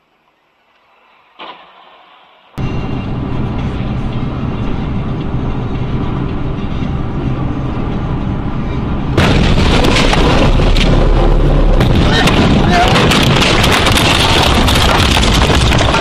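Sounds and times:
engine and road rumble: 2.6s - 16.0s
loud crashing roar: 9.2s - 16.0s.

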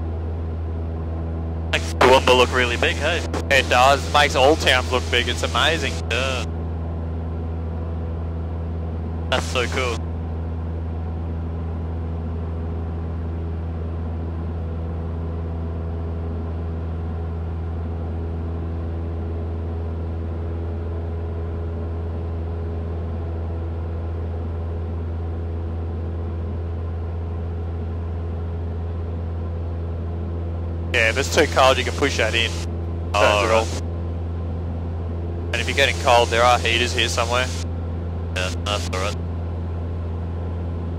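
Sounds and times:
propeller plane engine droning: 0.0s - 40.9s.

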